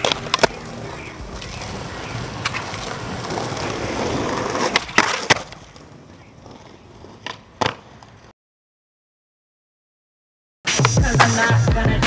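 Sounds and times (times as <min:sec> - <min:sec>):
skateboard clacks: 0:00.0 - 0:08.3
skateboard wheels rolling on paving: 0:00.0 - 0:08.3.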